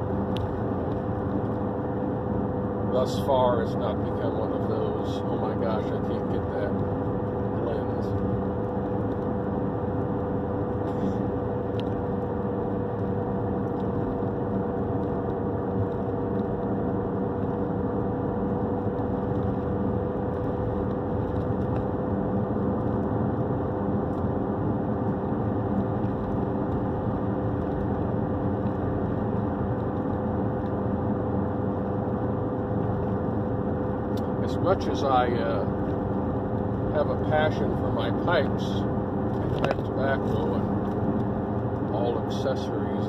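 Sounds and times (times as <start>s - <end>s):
vehicle engine drone inside cabin: 0.0s - 43.0s.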